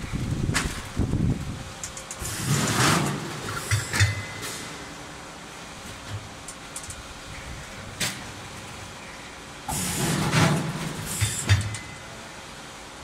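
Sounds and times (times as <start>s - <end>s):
packing machine running: 0.0s - 6.9s, 7.6s - 12.4s
sharp machine clicks: 1.8s - 4.6s, 6.4s - 7.0s.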